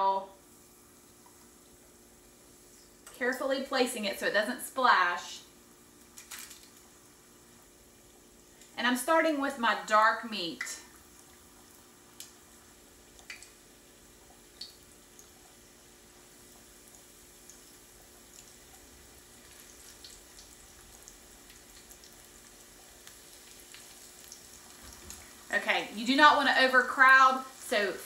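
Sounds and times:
chicken frying in oil: 5.2s - 28.0s.

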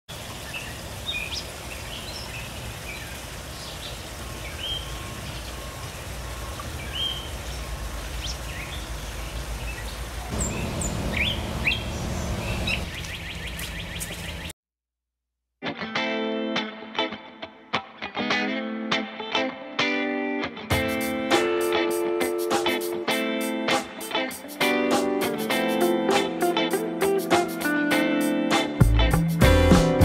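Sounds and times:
small songbirds chirping: 0.4s - 14.5s
fast even bird trill: 10.3s - 13.0s
low outdoor rumble: 10.3s - 13.2s.

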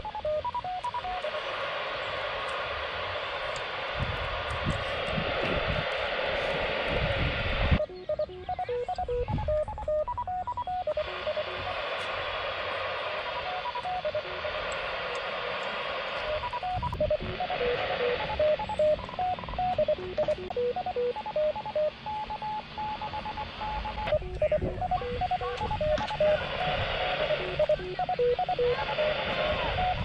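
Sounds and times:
radio hiss: 0.0s - 30.0s
short beeps at changing pitches: 7.8s - 11.7s.

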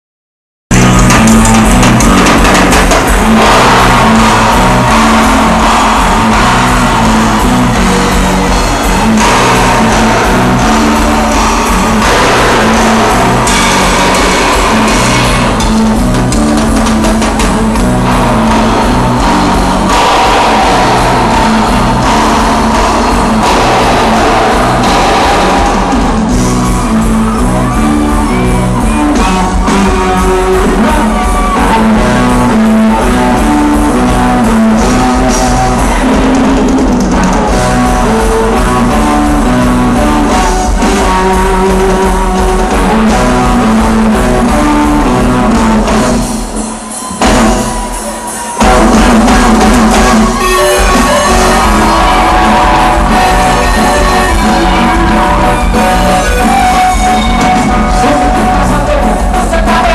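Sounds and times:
live band playing loud: 0.7s - 59.9s
person singing: 50.7s - 59.9s.

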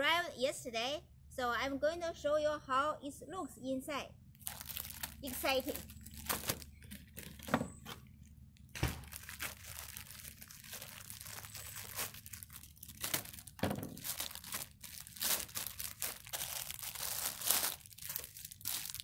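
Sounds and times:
plastic bag crinkling: 4.4s - 19.0s
scissors cutting plastic: 8.8s - 19.0s.

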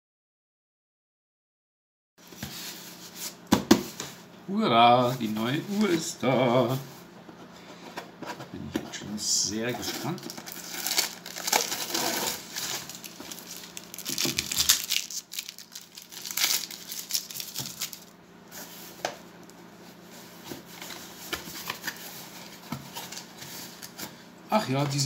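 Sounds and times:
cardboard scraping and rustling: 7.7s - 19.1s
packing tape tearing: 10.0s - 18.1s.

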